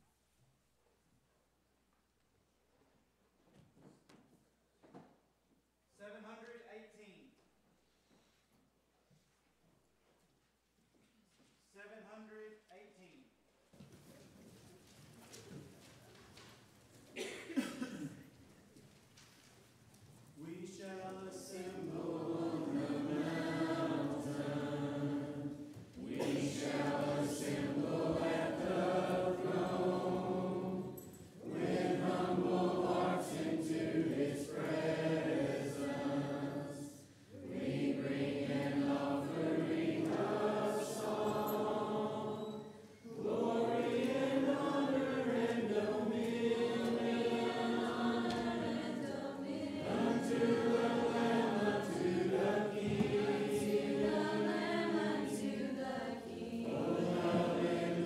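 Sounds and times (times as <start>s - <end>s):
congregation singing a hymn: 20.4s - 58.0s.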